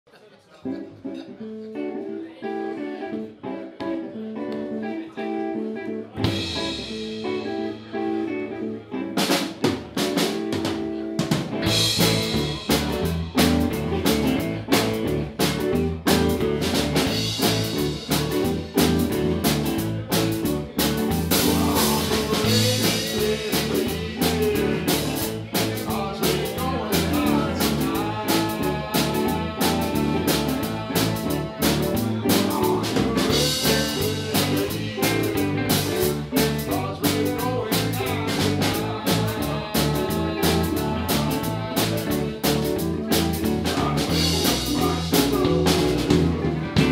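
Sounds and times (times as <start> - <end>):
electric guitar figure: 1.0 - 46.9
live band playing: 1.9 - 46.9
drum kit beat: 6.2 - 7.7, 9.2 - 46.9.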